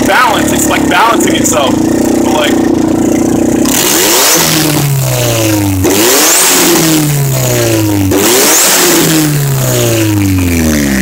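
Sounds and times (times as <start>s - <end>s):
car engine idling unevenly: 0.0s - 6.0s.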